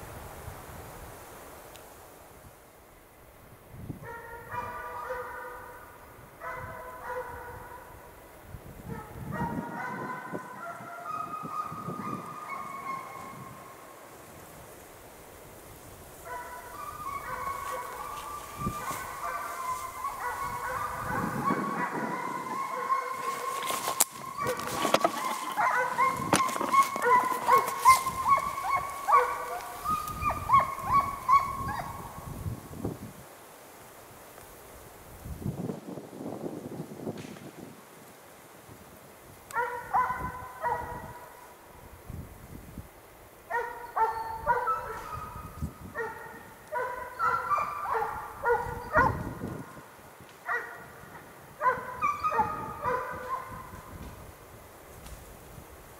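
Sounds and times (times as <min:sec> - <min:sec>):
hounds baying: 0:04.1 - 0:05.8, 0:06.4 - 0:07.9, 0:08.9 - 0:13.7, 0:16.3 - 0:32.2, 0:39.5 - 0:41.4, 0:43.5 - 0:49.8, 0:50.4 - 0:51.0, 0:51.6 - 0:53.8.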